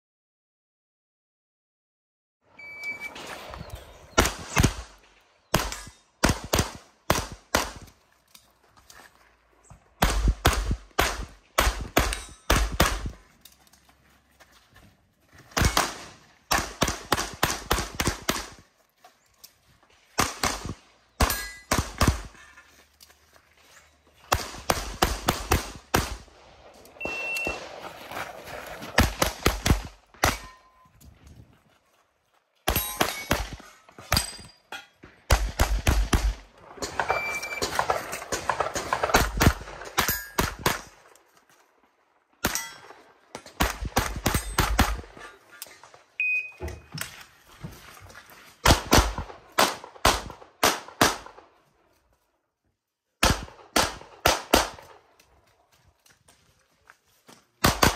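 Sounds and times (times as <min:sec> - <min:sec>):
pistol firing rapid shots: 0:05.5 - 0:07.8, 0:10.0 - 0:13.2, 0:15.6 - 0:18.6, 0:20.2 - 0:22.3, 0:24.3 - 0:26.3, 0:35.3 - 0:36.4, 0:48.6 - 0:51.4, 0:53.2 - 0:54.9, 0:57.6 - 0:57.9.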